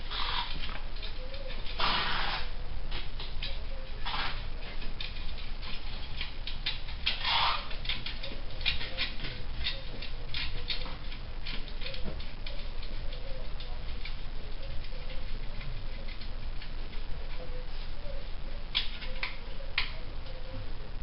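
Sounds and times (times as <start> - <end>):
short scraping rasps: 1.8 - 2.5.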